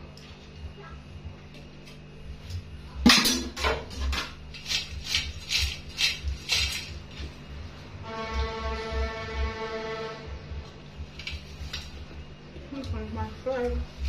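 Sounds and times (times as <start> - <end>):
music: 7.6 - 12.0.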